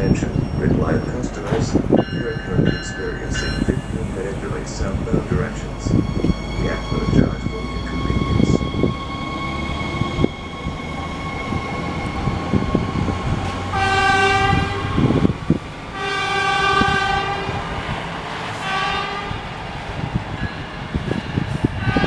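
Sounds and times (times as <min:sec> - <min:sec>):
train engine rumbling: 0:00.0 - 0:22.0
train horn blasts: 0:13.7 - 0:15.2, 0:16.0 - 0:17.6, 0:18.6 - 0:19.4.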